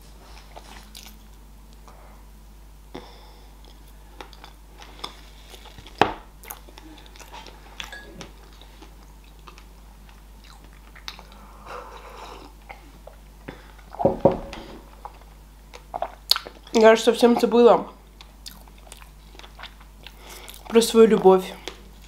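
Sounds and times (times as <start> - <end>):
crunchy chewing: 3.6 - 12.9.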